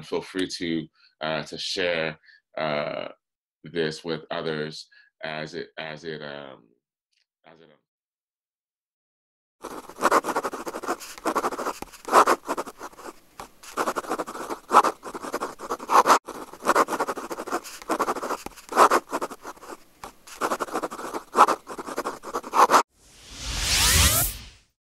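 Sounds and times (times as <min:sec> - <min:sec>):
choppy scratchy noise: 0:09.6 - 0:22.8
short rising whoosh: 0:23.0 - 0:24.7.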